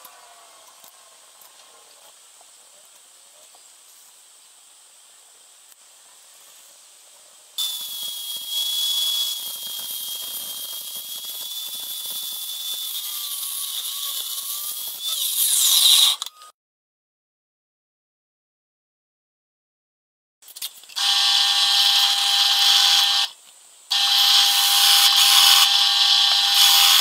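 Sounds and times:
mitre saw cutting metal: 7.6 - 16.2, 21.0 - 23.3, 23.9 - 27.0.

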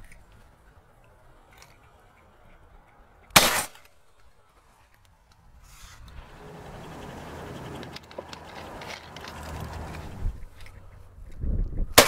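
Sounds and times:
shotgun shot: 3.4 - 3.9.

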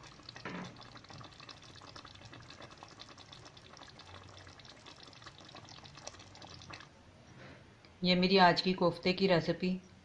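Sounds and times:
curry bubbling in a pan: 0.0 - 7.0.

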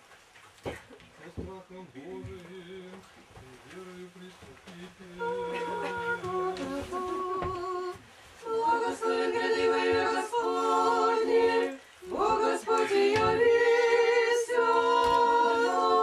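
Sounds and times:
small choir singing a cappella: 5.0 - 16.0.

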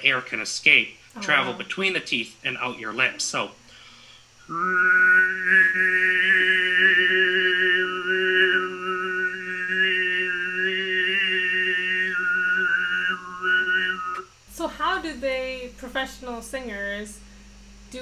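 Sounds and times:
man throat singing: 1.2 - 1.8, 4.4 - 14.3.

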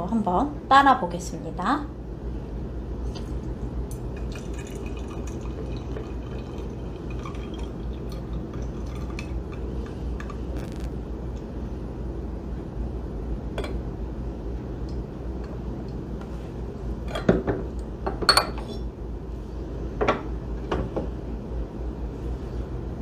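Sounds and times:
tea pouring into glass pitcher: 3.9 - 10.4.

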